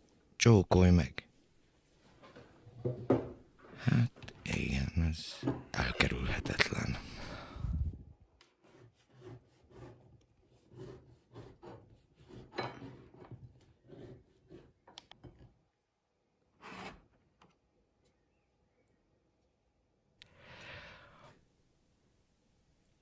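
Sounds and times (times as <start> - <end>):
knife scraping bread roll: 8.5 - 14.8.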